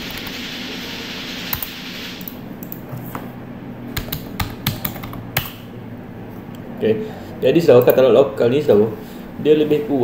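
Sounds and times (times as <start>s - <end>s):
keyboard keys clicking: 4.0s - 5.6s.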